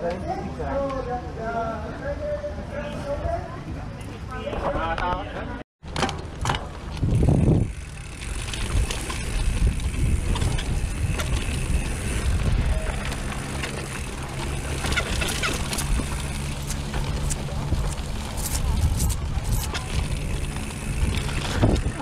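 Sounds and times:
bike rattling clicks: 0:05.9 - 0:22.0
bike tyre rumble: 0:05.9 - 0:22.0
wind on microphone: 0:06.9 - 0:13.2, 0:15.4 - 0:22.0.

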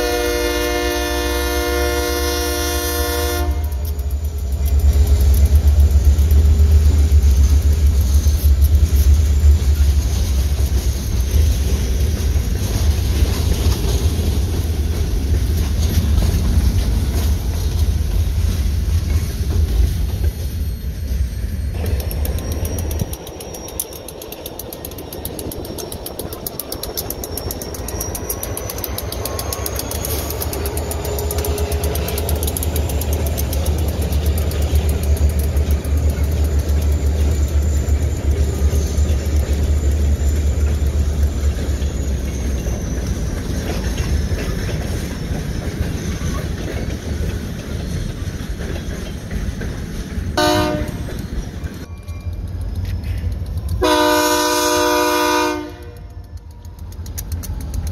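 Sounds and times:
locomotive horn blast: 0:00.0 - 0:04.0, 0:50.4 - 0:51.0, 0:53.8 - 0:56.2
freight train passing: 0:00.0 - 0:57.9.

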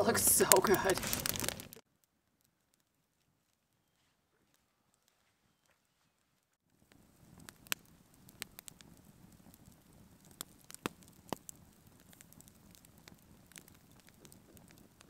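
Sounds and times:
campfire flame rushing: 0:00.0 - 0:01.8, 0:06.7 - 0:15.0
fire crackling and popping: 0:00.0 - 0:04.0, 0:06.4 - 0:15.0.

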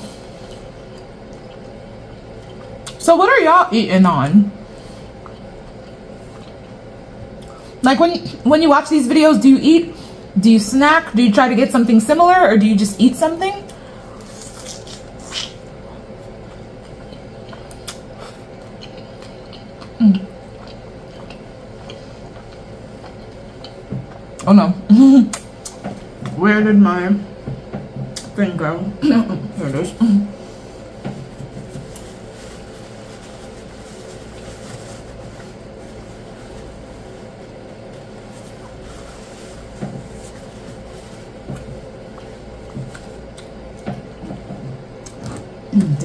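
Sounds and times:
background hum: 0:00.0 - 0:46.0
wet chewing mouth sounds: 0:00.4 - 0:03.0, 0:04.9 - 0:07.6, 0:14.3 - 0:24.5, 0:39.6 - 0:46.0
taco crunches: 0:14.2 - 0:15.6.

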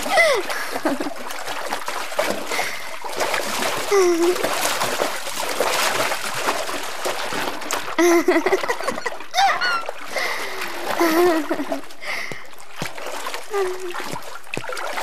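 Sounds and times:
woman squealing with laughter: 0:00.0 - 0:00.4, 0:08.0 - 0:10.0
water splashing in pool: 0:00.0 - 0:15.0.

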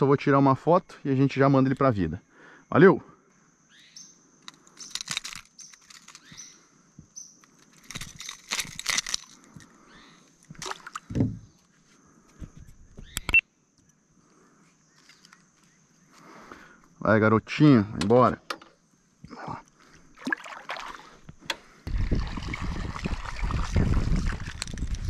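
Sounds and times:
handling rustles and knocks: 0:04.4 - 0:06.4, 0:07.0 - 0:09.7
metallic clicks of hooks: 0:04.4 - 0:06.5, 0:07.4 - 0:09.7.

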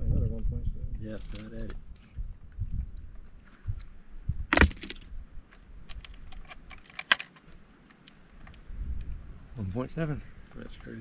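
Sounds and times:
small hard objects clattering: 0:04.5 - 0:05.0.

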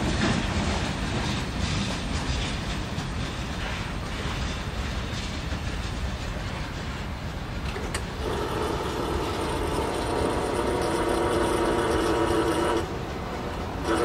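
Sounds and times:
freight train rolling over tracks: 0:00.0 - 0:14.0
locomotive air horn blast: 0:08.2 - 0:12.9.

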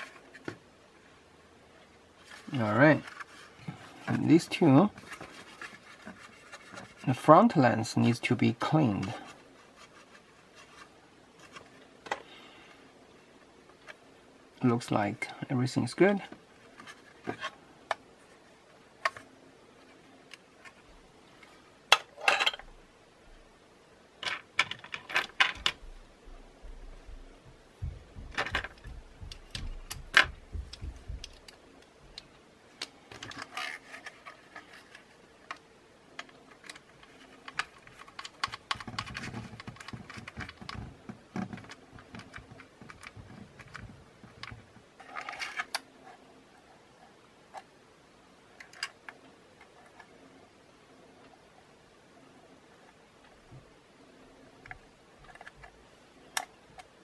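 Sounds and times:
plastic parts clicking and knocking: 0:19.0 - 0:19.2, 0:24.2 - 0:25.9, 0:27.8 - 0:45.9, 0:48.6 - 0:50.1, 0:54.6 - 0:57.0.

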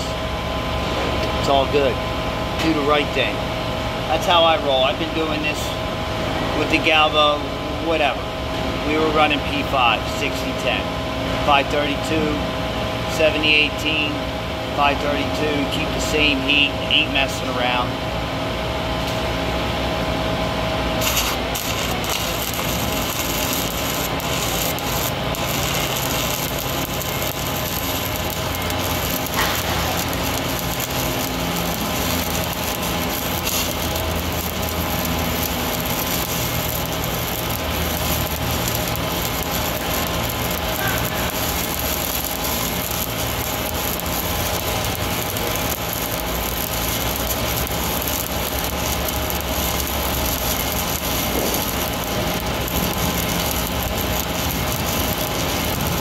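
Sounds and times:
engine drone: 0:17.7 - 0:56.0
welding arc crackling: 0:19.0 - 0:56.0.

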